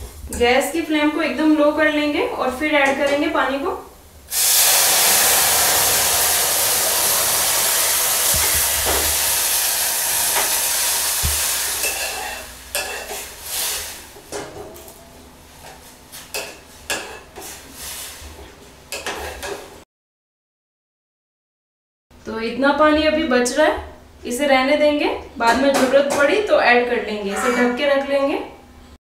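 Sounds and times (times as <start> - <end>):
hot water hissing on hot grains: 4.3 - 14.2
metal ladle scraping and clinking: 11.8 - 13.2.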